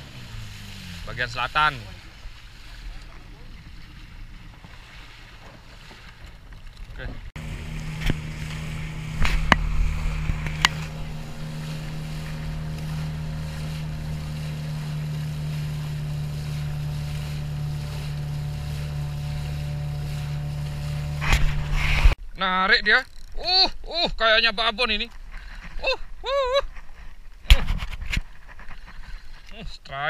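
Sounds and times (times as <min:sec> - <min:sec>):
small boat motor running: 0:00.0 - 0:22.2
water splashing off hull: 0:00.0 - 0:22.2.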